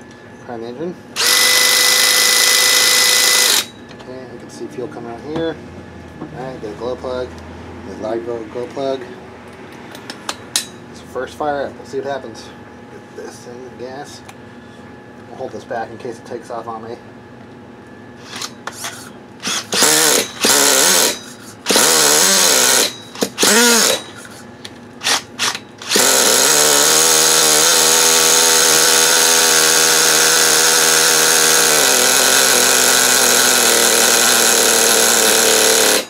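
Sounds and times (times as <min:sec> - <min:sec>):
cordless drill spinning engine: 0:01.2 - 0:03.7, 0:18.3 - 0:18.6, 0:19.4 - 0:24.4, 0:25.0 - 0:36.0
small engine running: 0:19.4 - 0:24.4, 0:25.0 - 0:36.0.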